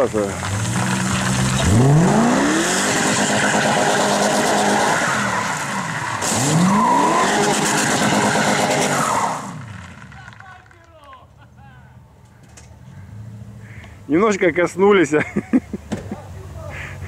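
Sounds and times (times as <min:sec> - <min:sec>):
car engine revving: 0:00.0 - 0:10.2.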